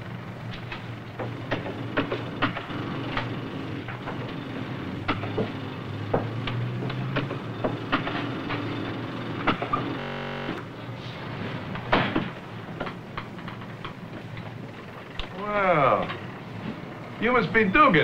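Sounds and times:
heavy machinery humming: 0:00.0 - 0:18.0
sharp knocks and clanks: 0:00.5 - 0:04.4, 0:05.0 - 0:10.6, 0:11.7 - 0:14.6.

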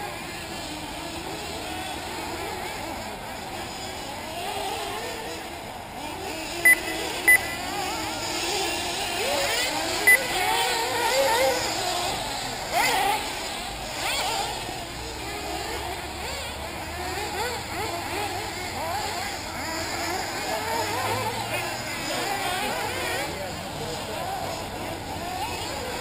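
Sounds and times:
rc car engines revving: 0:00.0 - 0:26.0
short high beeps: 0:06.6 - 0:08.0, 0:10.1 - 0:10.3.

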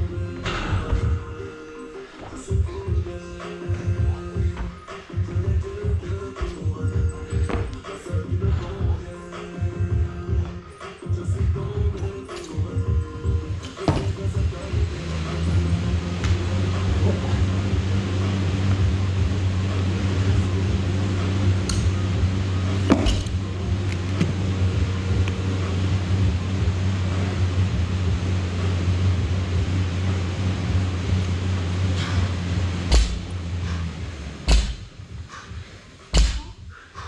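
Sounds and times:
low mechanical hum: 0:00.0 - 0:37.0.

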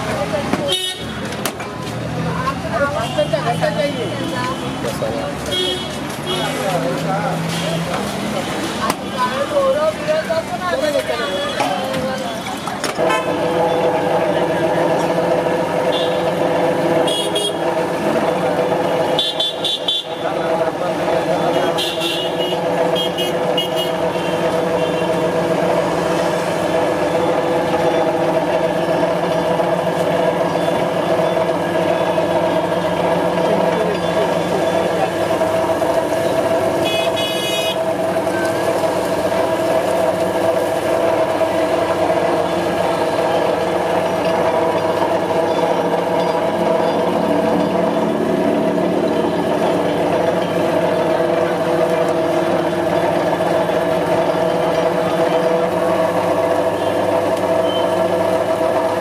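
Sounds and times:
sugarcane crusher humming: 0:00.0 - 0:59.0
vehicle horn toot: 0:00.7 - 0:01.2, 0:13.0 - 0:13.4, 0:15.9 - 0:16.2, 0:17.0 - 0:17.6, 0:19.1 - 0:20.2, 0:21.6 - 0:25.1, 0:36.8 - 0:37.9.

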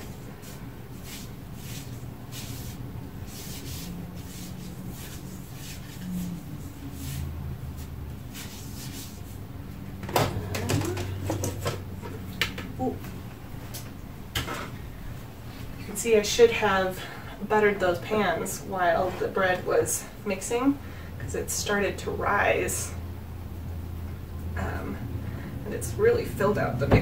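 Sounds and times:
hand rubbing oil on countertop: 0:00.0 - 0:09.5.

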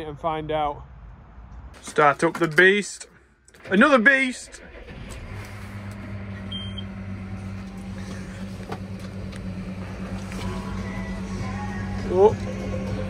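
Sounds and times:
tractor diesel engine idling: 0:03.6 - 0:13.0
short high beep: 0:06.5 - 0:06.9.

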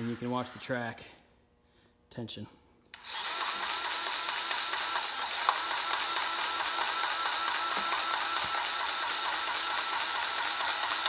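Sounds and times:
powered grease gun pumping: 0:00.0 - 0:00.8, 0:03.0 - 0:11.0.

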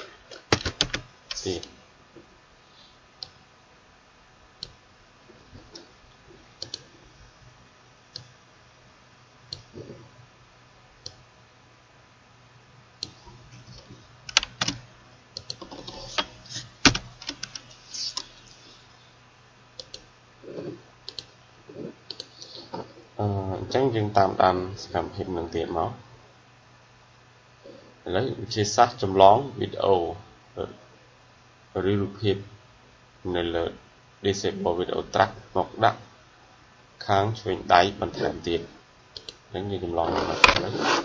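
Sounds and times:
typing on computer keyboard: 0:00.4 - 0:01.4, 0:14.3 - 0:14.8, 0:16.8 - 0:18.3.

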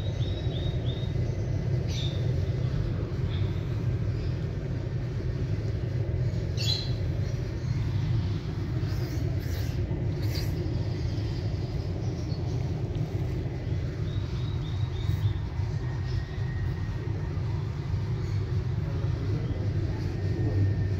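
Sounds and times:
low background rumble: 0:00.0 - 0:20.9
high rising chirp: 0:05.8 - 0:19.7.

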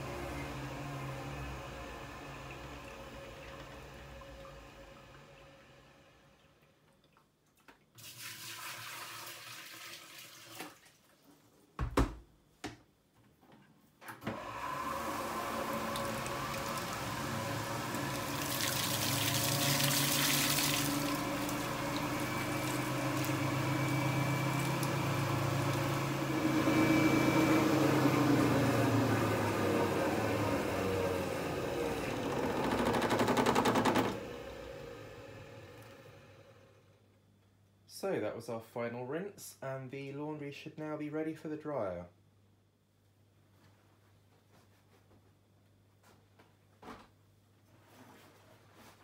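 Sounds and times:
washing machine motor hum: 0:00.0 - 0:06.8, 0:14.0 - 0:37.1
water gushing and splashing: 0:15.2 - 0:26.8.

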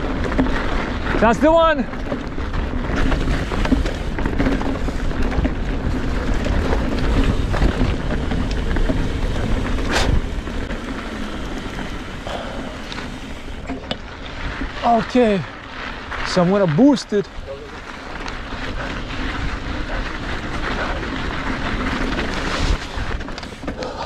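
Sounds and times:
wind buffeting microphone: 0:00.0 - 0:16.2
bike rattles and clicks: 0:00.0 - 0:24.0
bike tyres rumbling on dirt trail: 0:00.0 - 0:24.0.

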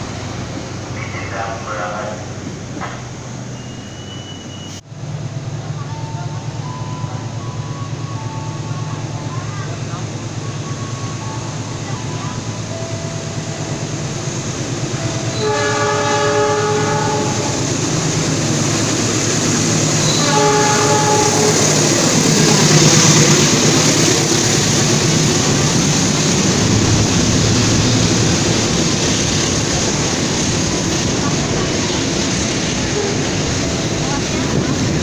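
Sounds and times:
diesel locomotive passing: 0:00.0 - 0:35.0
wagons rumbling and clattering on rails: 0:00.0 - 0:35.0
train horn blasts: 0:15.0 - 0:17.8, 0:20.0 - 0:22.4.

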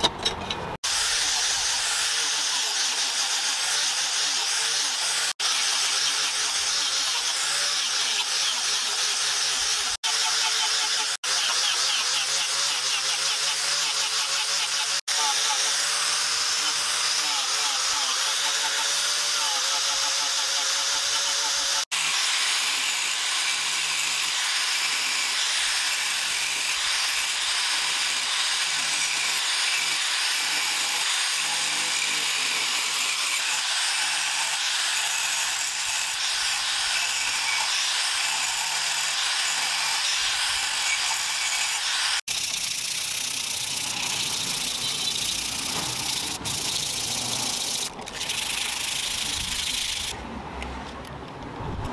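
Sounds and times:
angle grinder grinding metal: 0:00.0 - 0:50.2
sandpaper rubbing wood: 0:00.8 - 0:22.6, 0:39.2 - 0:50.2.

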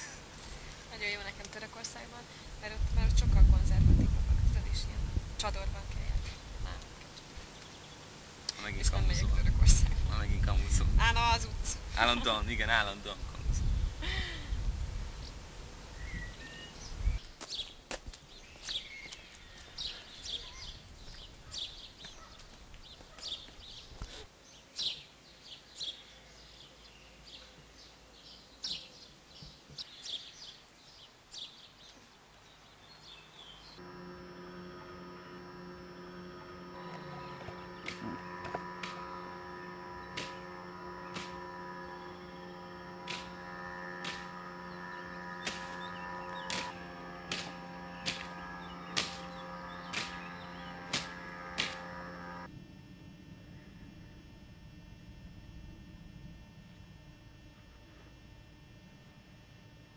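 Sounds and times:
birds chirping: 0:00.0 - 0:52.5
electric hum of held tones: 0:00.0 - 0:59.9
sharp clicks: 0:40.1 - 0:40.5.

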